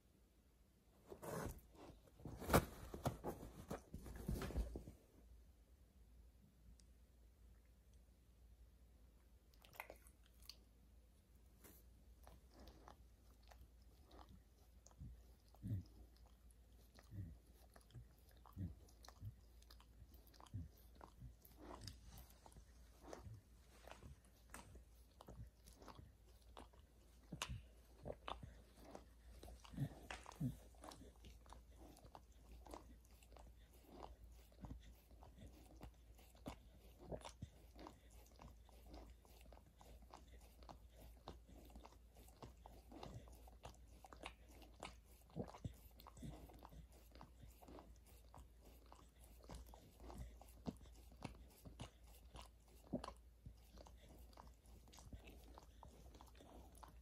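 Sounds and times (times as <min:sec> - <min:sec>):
dog chewing and crunching: 0:12.2 - 0:57.0.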